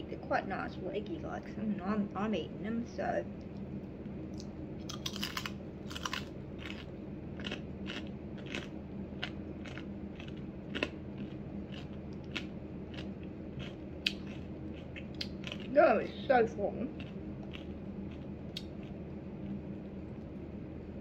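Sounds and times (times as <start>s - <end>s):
steady low hum: 0.0s - 21.0s
person chewing crispy bacon: 4.4s - 15.8s, 16.9s - 20.2s.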